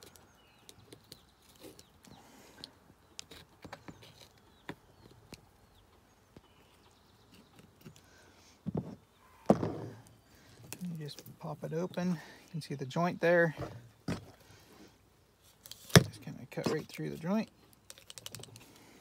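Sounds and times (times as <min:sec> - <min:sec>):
faint bird chirps: 0:00.0 - 0:11.8.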